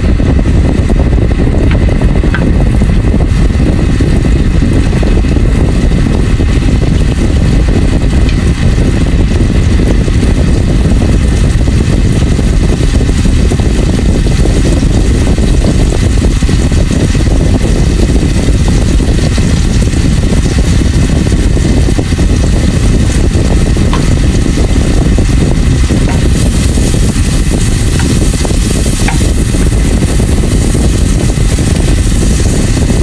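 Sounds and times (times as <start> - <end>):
garlic sizzling in butter: 16.4 - 33.0.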